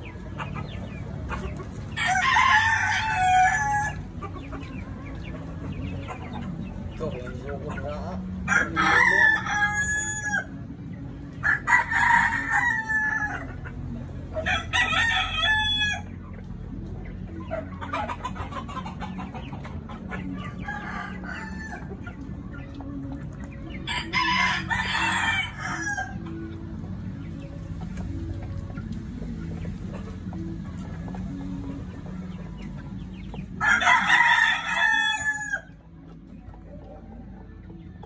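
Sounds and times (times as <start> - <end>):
rooster crowing: 33.6 - 35.7.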